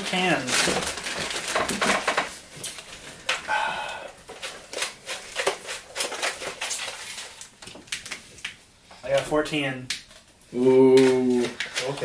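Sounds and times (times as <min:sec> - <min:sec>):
paper bags rustling: 0:00.0 - 0:03.4, 0:04.2 - 0:08.4, 0:10.9 - 0:12.0.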